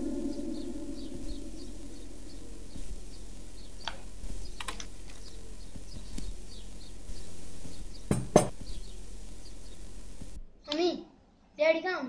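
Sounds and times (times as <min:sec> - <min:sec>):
faint high chirps: 0:00.0 - 0:09.9.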